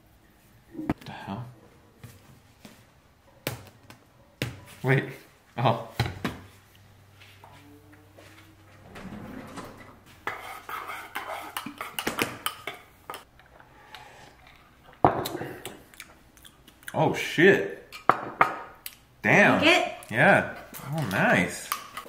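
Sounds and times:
dishes and cutlery clinking: 0:10.2 - 0:13.5.

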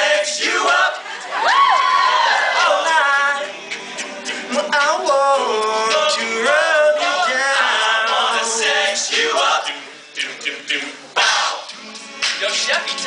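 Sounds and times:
male a cappella group singing: 0:00.0 - 0:01.4, 0:02.2 - 0:13.0.

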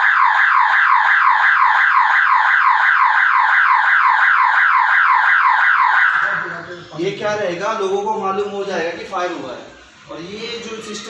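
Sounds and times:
fire alarm electronic warble: 0:00.0 - 0:06.7.

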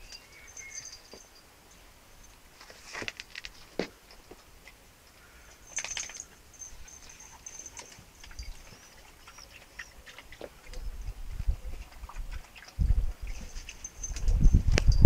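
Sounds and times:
small birds twittering: 0:00.0 - 0:01.5.

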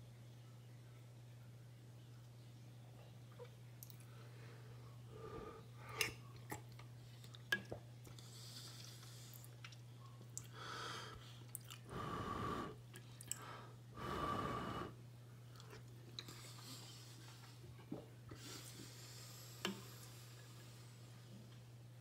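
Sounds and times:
chewing and mouth noises: 0:06.0 - 0:10.6, 0:11.4 - 0:11.9.

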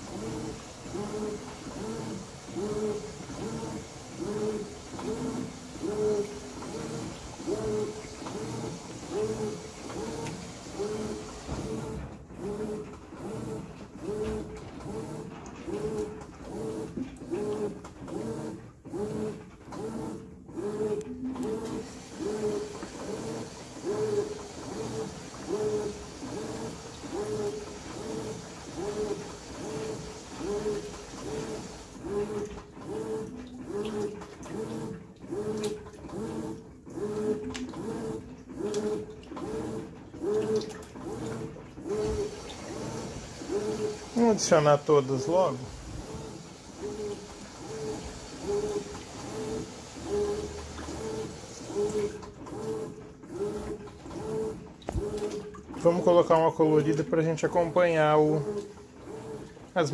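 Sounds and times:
washing machine agitator humming: 0:00.0 - 0:59.9
churning water: 0:38.7 - 0:59.9.

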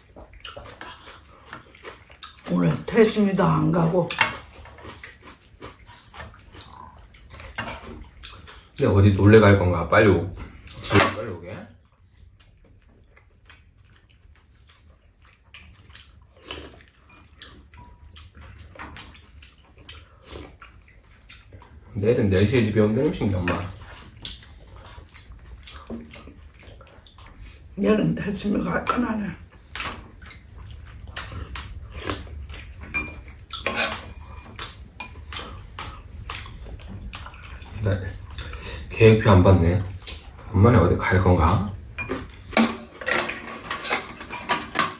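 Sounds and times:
people chewing: 0:00.0 - 0:11.2, 0:11.8 - 0:44.9
slurps and smacks: 0:11.8 - 0:22.0, 0:22.6 - 0:27.8, 0:28.8 - 0:41.2
spoons clinking against bowls: 0:32.9 - 0:34.4.

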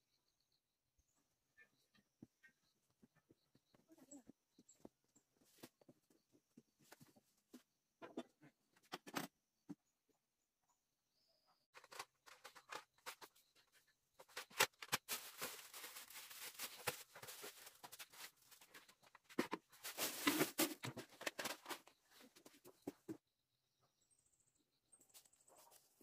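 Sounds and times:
plastic bag crinkling: 0:14.8 - 0:18.9, 0:19.8 - 0:21.6.

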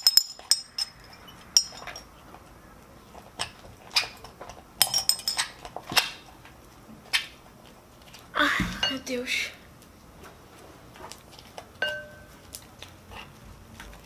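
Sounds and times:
utensil clinking glass bowl: 0:00.0 - 0:02.1, 0:04.8 - 0:05.6, 0:11.8 - 0:12.3.

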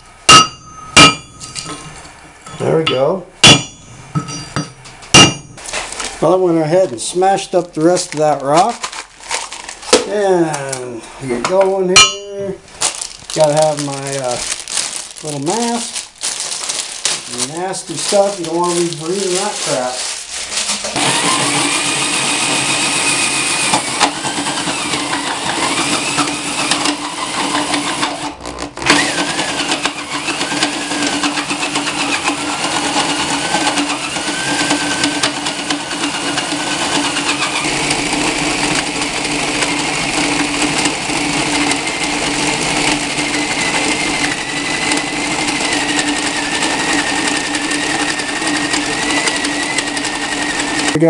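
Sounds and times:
rock cracking in crusher: 0:12.8 - 0:22.7
electric drill whining: 0:20.6 - 0:51.0.

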